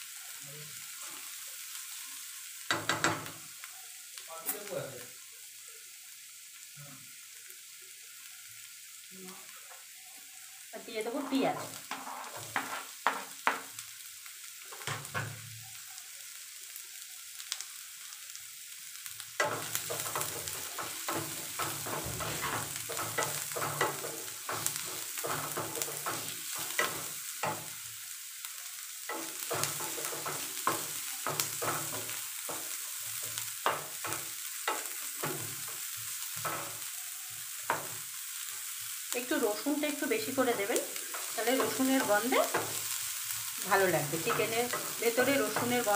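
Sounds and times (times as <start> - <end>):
onions sizzling in oil: 0.0 - 45.9
wooden spatula scraping a pan: 11.2 - 13.6, 19.4 - 27.7, 29.1 - 36.9, 39.4 - 45.9.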